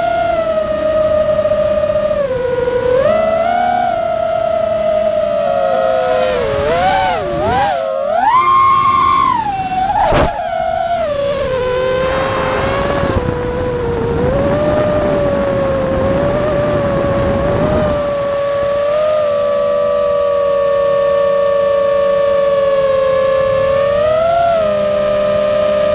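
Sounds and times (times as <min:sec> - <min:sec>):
drone motors whining: 0:00.0 - 0:25.9
rushing noise: 0:08.8 - 0:12.9.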